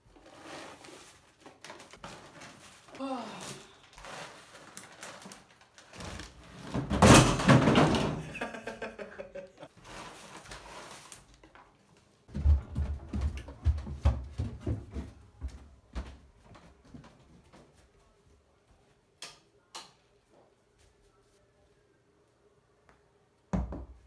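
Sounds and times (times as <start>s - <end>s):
paper bags rustling: 0.1s - 6.6s, 9.7s - 11.7s.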